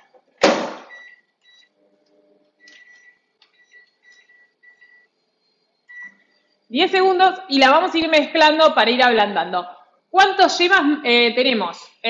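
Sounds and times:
microwave oven humming: 0:00.0 - 0:07.9.

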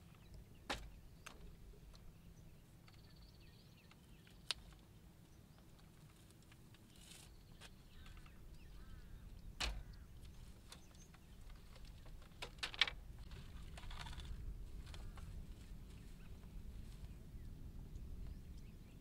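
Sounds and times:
dry grass rustling and crackling: 0:04.0 - 0:18.4.

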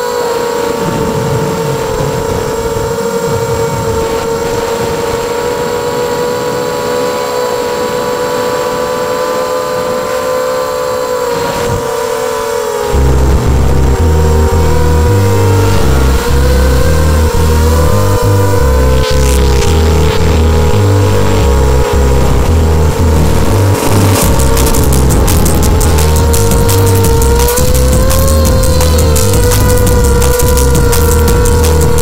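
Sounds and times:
drone motors whining: 0:00.0 - 0:32.0
music with heavy bass line: 0:12.9 - 0:32.0.

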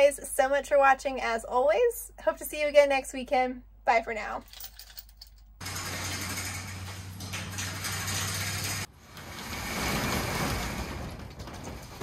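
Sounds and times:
metal roll-up door rattling open: 0:05.6 - 0:12.0.

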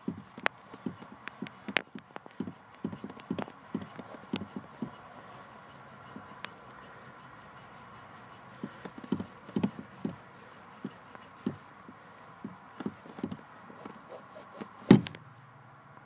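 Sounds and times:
shoe tapping accelerator pedal: 0:00.0 - 0:15.3
loud thump: 0:14.8 - 0:15.2.

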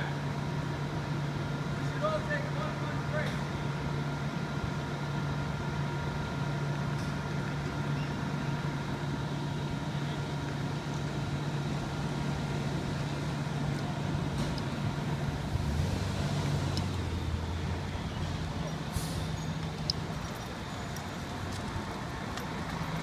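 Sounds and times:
diesel engine idling: 0:00.0 - 0:23.0
car driving past: 0:15.3 - 0:19.6.

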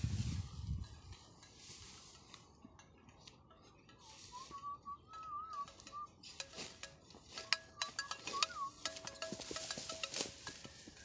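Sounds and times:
thin wavering whistle: 0:04.0 - 0:06.2, 0:07.7 - 0:08.9
sharp metallic clinks: 0:05.0 - 0:11.0.

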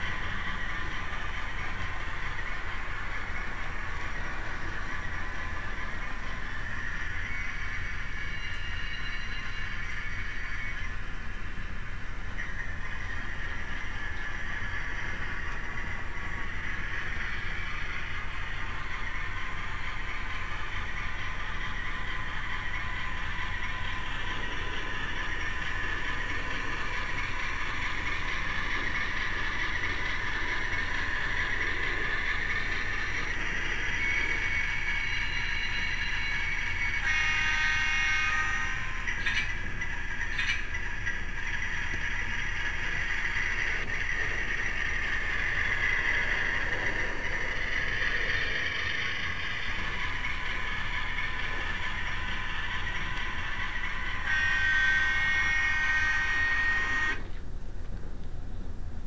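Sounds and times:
diesel engine sound: 0:00.0 - 0:59.0
model train motor and wheels rumbling: 0:00.0 - 0:59.0
train horn: 0:35.5 - 0:39.5, 0:53.9 - 0:57.2.

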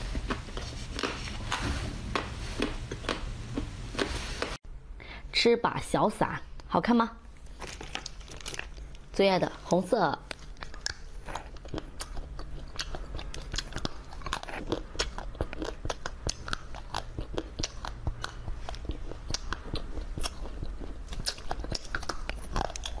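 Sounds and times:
candy crunching and chewing: 0:07.4 - 0:09.6, 0:10.2 - 0:23.0.

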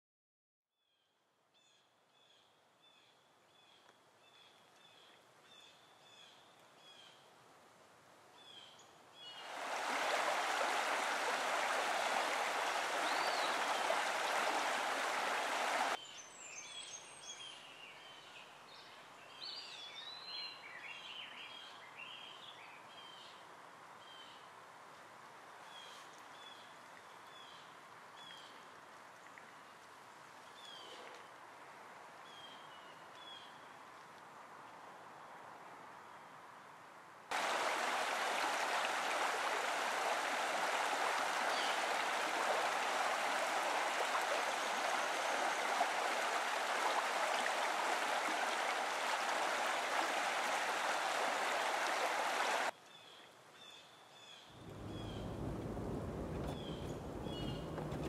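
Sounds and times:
river rushing over stones: 0:09.4 - 0:16.0, 0:37.3 - 0:52.8, 0:54.6 - 0:58.0
songbirds chirping: 0:10.4 - 0:24.5, 0:51.9 - 0:58.0
faint steady rushing: 0:54.6 - 0:58.0.

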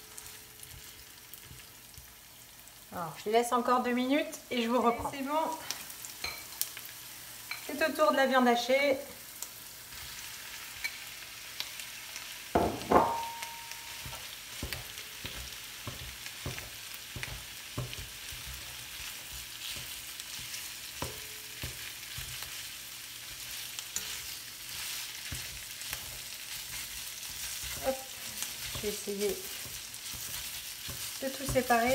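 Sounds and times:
meat and onion sizzling in wok: 0:00.0 - 0:31.9
spatula tapping pan: 0:12.6 - 0:22.6, 0:25.2 - 0:31.9.

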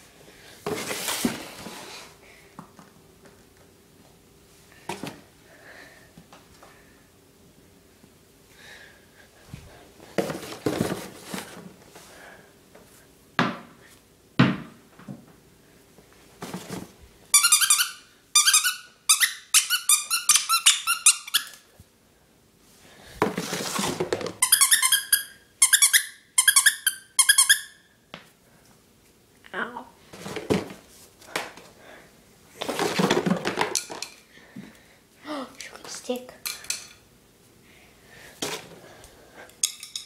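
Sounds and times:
squeaky dog toy squeaking: 0:17.3 - 0:21.6, 0:24.4 - 0:27.8.

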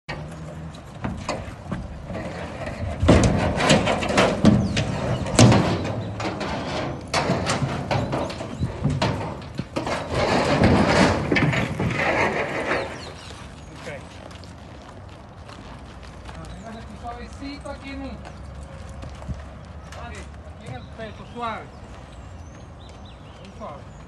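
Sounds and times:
hooves thudding in sand: 0:00.1 - 0:24.0
sharp knocks: 0:03.0 - 0:13.1.

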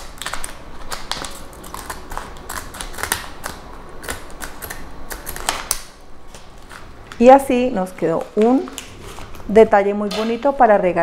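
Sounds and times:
scissors snipping paper: 0:00.0 - 0:06.9
paper rustling: 0:08.1 - 0:09.6.

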